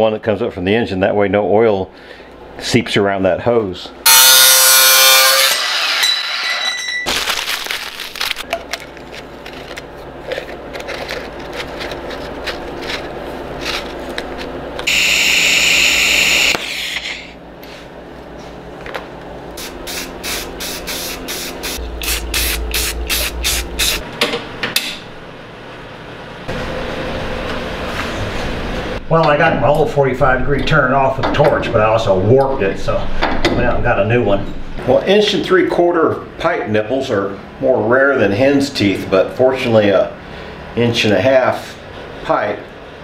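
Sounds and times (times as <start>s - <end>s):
angle grinder cutting metal pipe: 4.1s - 7.0s, 14.9s - 17.3s
arc welding hiss: 14.9s - 17.3s, 19.6s - 24.0s.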